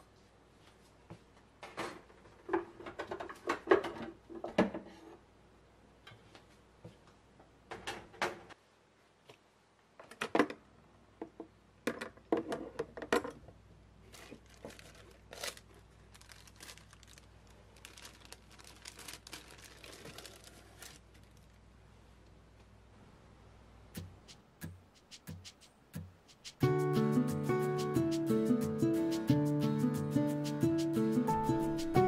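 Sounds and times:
plastic bag crinkling: 14.0 - 21.6.

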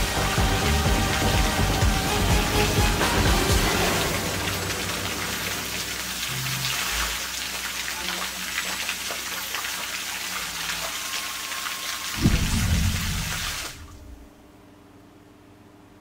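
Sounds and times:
fountain water splashing: 0.0 - 13.9
loud low boom: 12.2 - 14.3.

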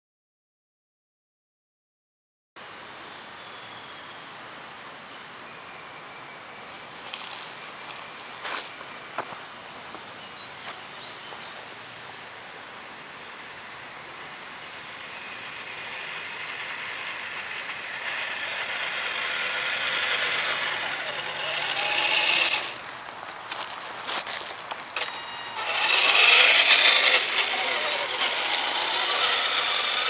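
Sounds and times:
toy truck motor and gears whining: 13.2 - 30.0.

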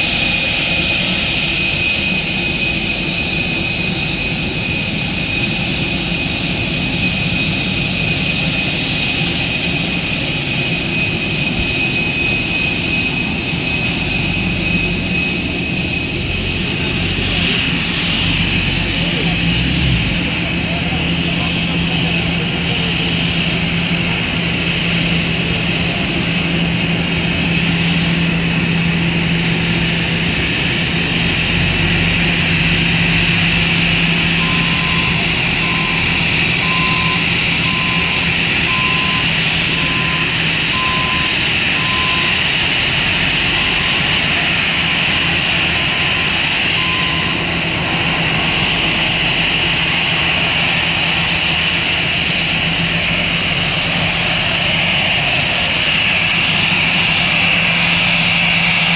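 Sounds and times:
jet engine whine: 0.0 - 58.9
short beeps: 34.4 - 42.4, 46.8 - 47.4.

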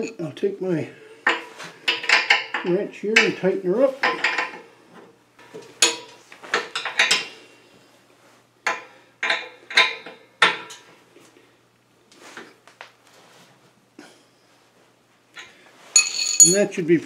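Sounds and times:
wrench clinking on metal fitting: 15.4 - 16.7.

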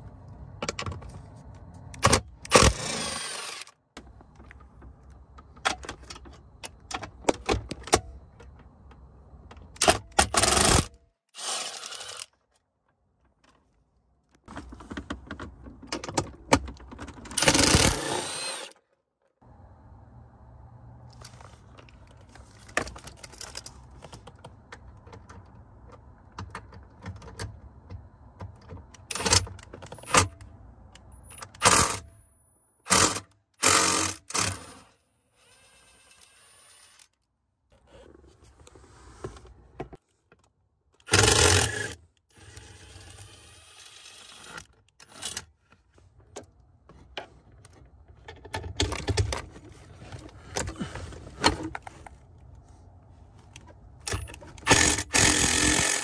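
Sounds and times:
cordless drill running: 2.6 - 3.7, 11.4 - 12.3, 17.4 - 18.7, 54.7 - 56.0
metal tools clinking: 22.2 - 23.9.

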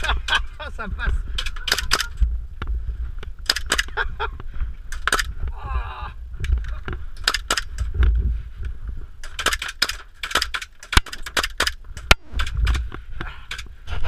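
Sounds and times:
sharp cracks: 1.3 - 2.2, 3.4 - 4.0, 4.9 - 5.4, 6.4 - 8.0, 9.2 - 13.7
airsoft shots clicking: 1.4 - 2.2, 3.4 - 4.0, 4.9 - 5.3, 7.2 - 7.9, 9.2 - 12.8.

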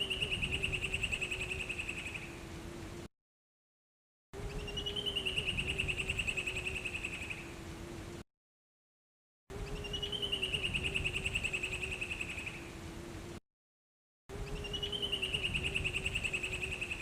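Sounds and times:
bird trilling song: 0.0 - 2.4, 4.4 - 7.5, 9.5 - 12.7, 14.3 - 17.0
faint low hum: 4.4 - 8.2.

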